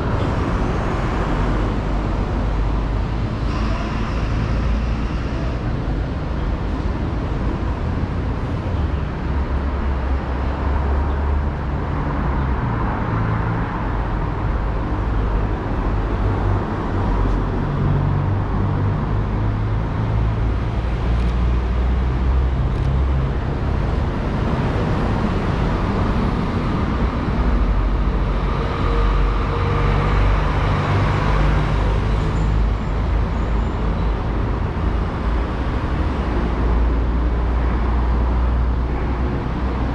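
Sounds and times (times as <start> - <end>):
road traffic rumble: 0.0 - 39.9.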